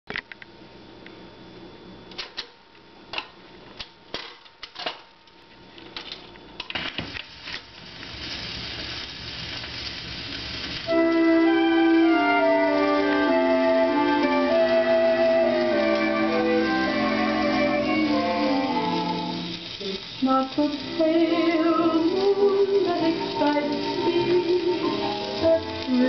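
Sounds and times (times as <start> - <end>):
record surface hiss: 0.1 - 26.0
music through a speaker: 10.9 - 26.0.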